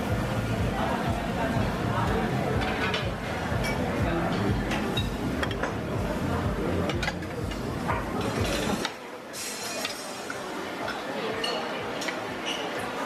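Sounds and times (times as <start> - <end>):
steady hiss: 8.2 - 10.6.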